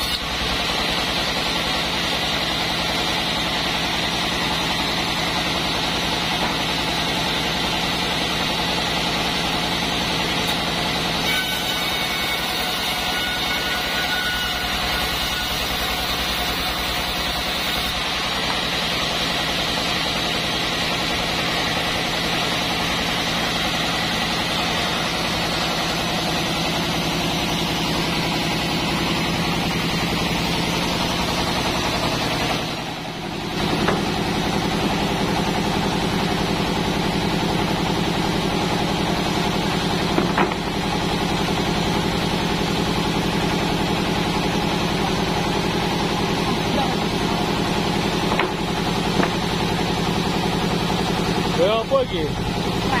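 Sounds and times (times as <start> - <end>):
band saw machinery drone: 0.0 - 53.0
sharp knocks: 33.7 - 34.1, 40.1 - 40.6, 48.3 - 49.4.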